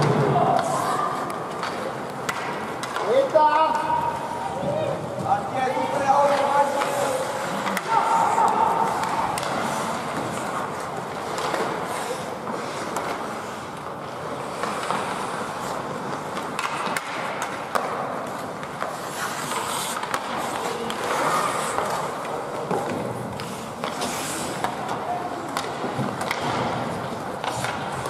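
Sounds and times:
hockey sticks clicking on puck: 0.0 - 28.0
steady rink hiss: 0.6 - 28.0
skate blades scraping ice: 5.4 - 28.0.

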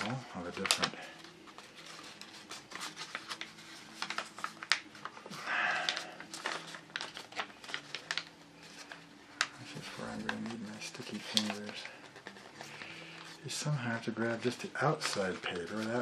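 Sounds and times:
paper crinkling: 0.0 - 16.0
paper sliding rustle: 0.0 - 16.0.

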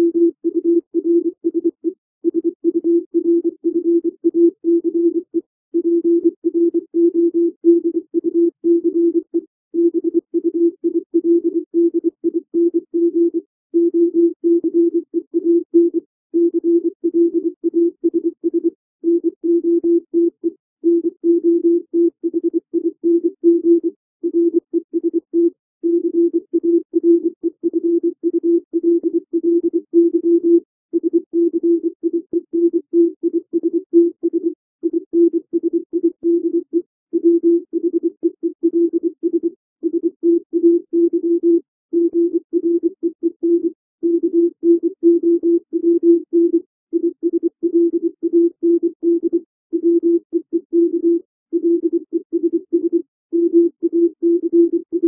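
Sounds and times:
morse code tone: 0.0 - 1.7, 37.2 - 55.0.

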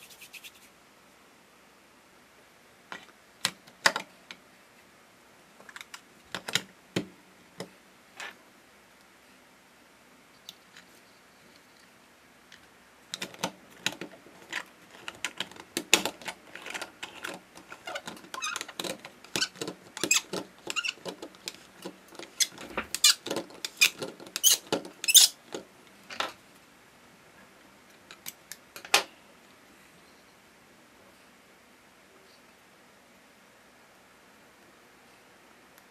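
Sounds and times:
plastic toy press creaking and squeaking: 16.6 - 21.5, 22.2 - 25.4.

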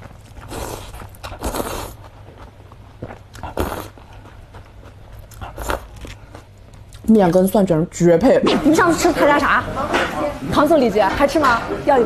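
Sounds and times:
person slurping noodles: 0.4 - 2.0, 3.5 - 4.0, 5.5 - 5.9.

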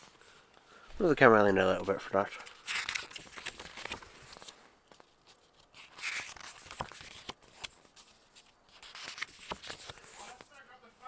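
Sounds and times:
paper pages rustling: 1.6 - 10.6.

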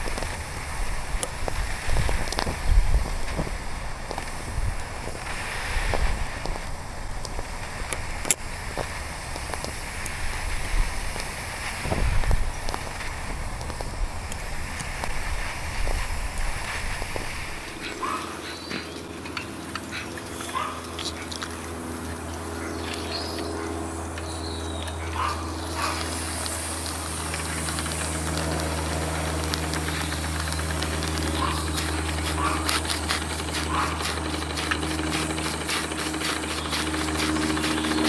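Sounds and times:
model steam engines running: 0.0 - 38.0
rapid mechanical clicking: 0.0 - 38.0.

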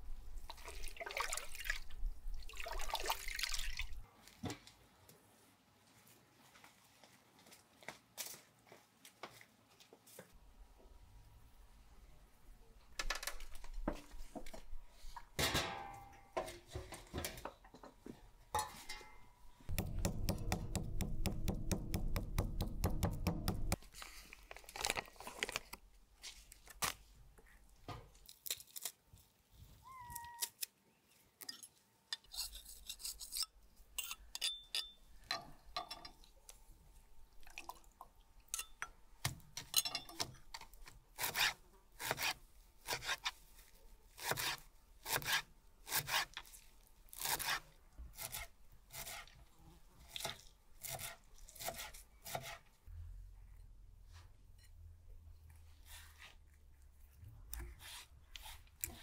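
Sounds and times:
metal pot and lid clanking: 15.4 - 16.7, 18.6 - 21.0
knife chopping on wooden board: 19.7 - 23.8.

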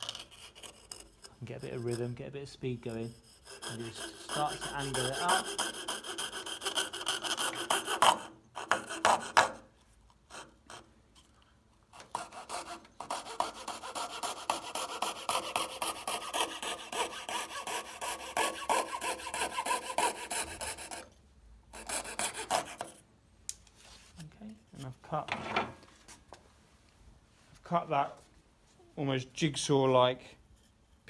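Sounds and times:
coping saw rasping through board: 0.0 - 9.6, 11.9 - 21.1, 21.8 - 23.0.

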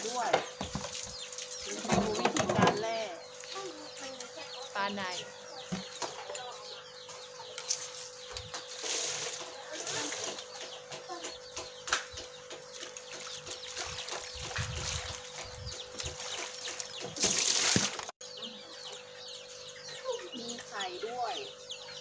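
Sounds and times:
chickens clucking: 0.0 - 17.2
chicks cheeping: 0.0 - 22.0.

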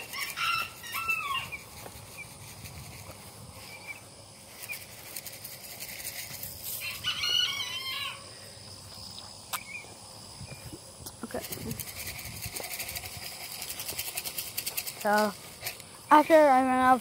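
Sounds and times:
rooster crowing: 0.0 - 1.6, 6.8 - 8.4.

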